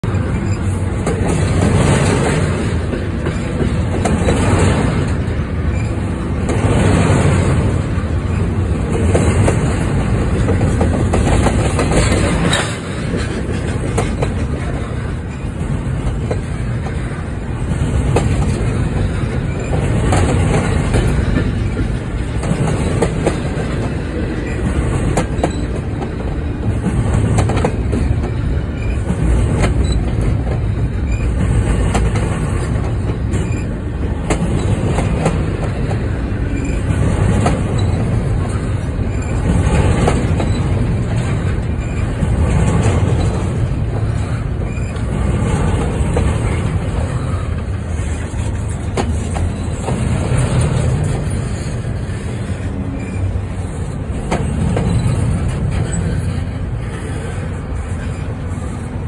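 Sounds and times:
wheels clicking over rail joints: 0.0 - 58.5
freight train wheels rumbling: 0.0 - 59.0.

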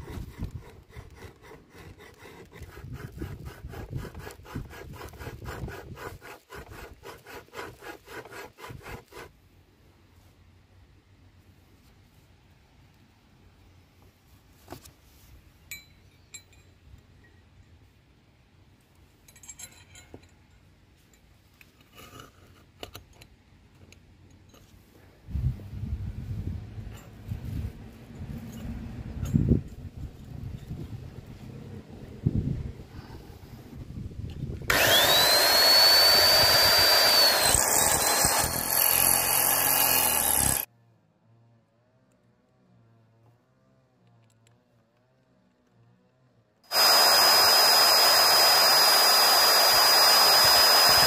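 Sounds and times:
light metallic clinks: 15.7 - 17.5, 19.2 - 21.4
small metal scrapes: 19.2 - 23.3
electric drill whining: 34.7 - 40.7, 46.7 - 51.0.

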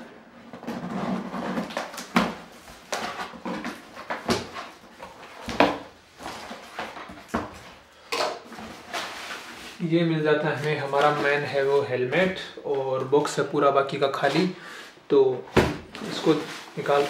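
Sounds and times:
cardboard rustling: 0.6 - 7.8, 15.6 - 17.0.

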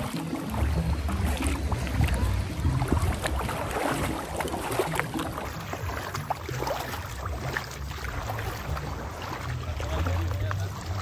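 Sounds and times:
small waves lapping: 0.0 - 11.0
wind buffeting microphone: 0.6 - 6.1.

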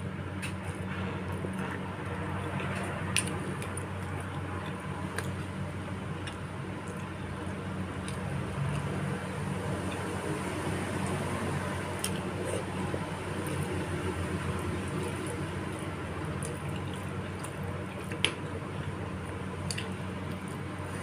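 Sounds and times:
steady low hum: 0.0 - 21.0
wet chewing: 11.9 - 21.0.

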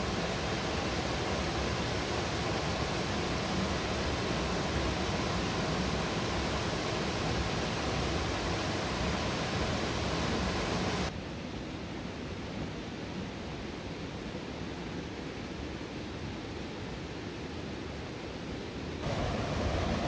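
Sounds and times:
waterfall rushing: 0.0 - 11.1, 19.0 - 20.0.

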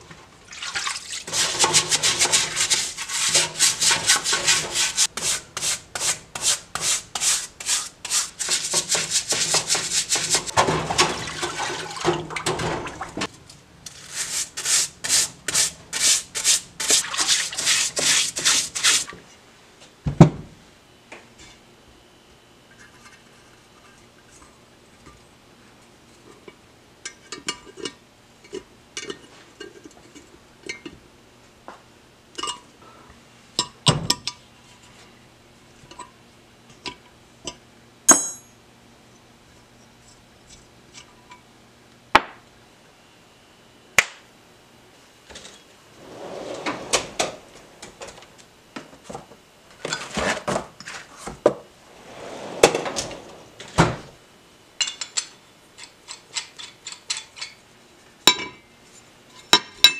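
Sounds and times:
metal wrench clinking on metal: 38.1 - 38.5.

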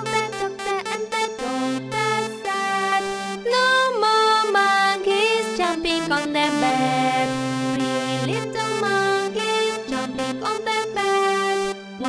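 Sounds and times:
instrumental children's music: 0.0 - 12.0.

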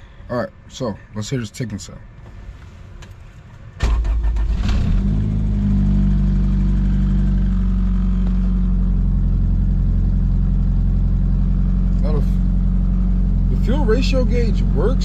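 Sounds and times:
car engine starting and idling: 3.0 - 15.0.

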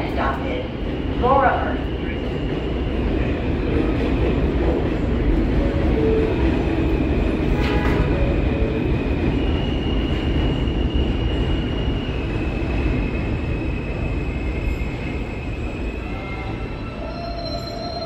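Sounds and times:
rumble of train wheels: 0.0 - 18.0
train doors shutting: 5.0 - 11.8.

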